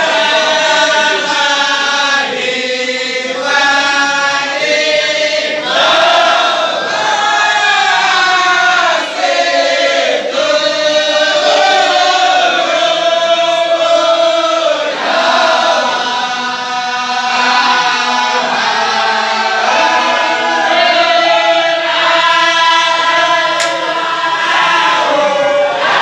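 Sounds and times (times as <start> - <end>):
men chanting in unison: 0.0 - 26.0.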